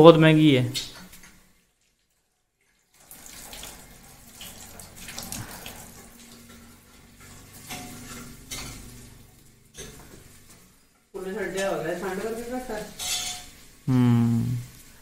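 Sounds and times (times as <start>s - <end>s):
tap water running into sink: 0.9s - 10.7s.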